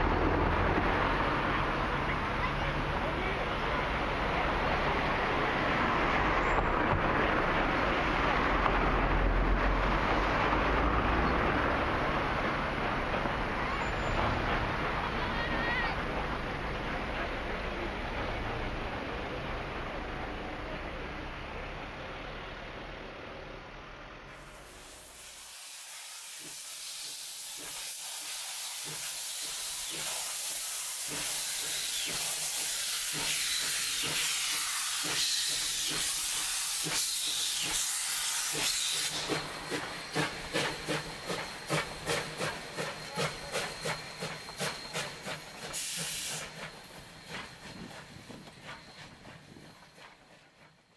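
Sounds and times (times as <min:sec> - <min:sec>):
steam hissing: 0:24.3 - 0:50.9
steam locomotive exhaust chuffs: 0:24.3 - 0:50.9.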